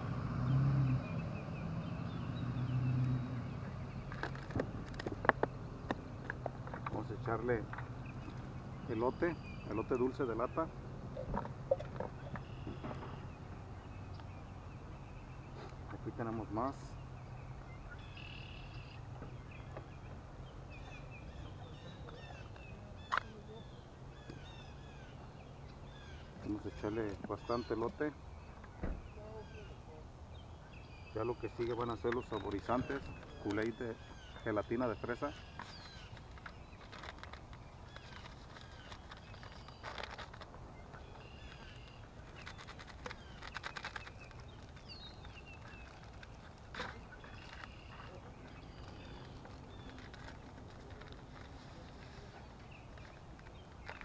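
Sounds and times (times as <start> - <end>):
birds chirping: 0.0 - 54.0
paper packet crackling: 35.5 - 54.0.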